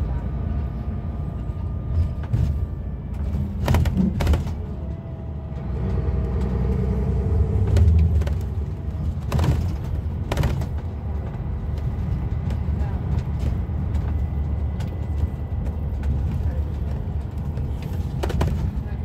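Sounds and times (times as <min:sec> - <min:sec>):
bus diesel engine and road rumble: 0:00.0 - 0:19.0
sharp knocks and rattles: 0:01.9 - 0:06.9, 0:07.6 - 0:18.9.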